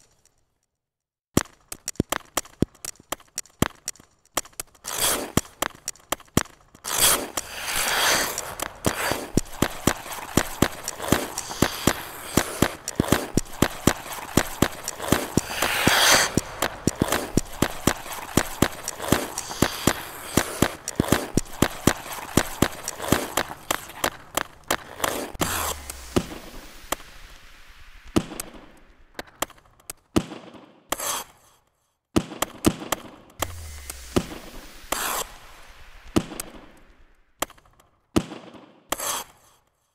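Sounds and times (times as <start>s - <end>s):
skate blades clicking on ice: 1.4s - 31.6s, 32.2s - 39.8s
skate blades scraping ice: 4.4s - 28.8s, 30.9s - 31.5s, 33.4s - 37.0s, 38.9s - 39.7s.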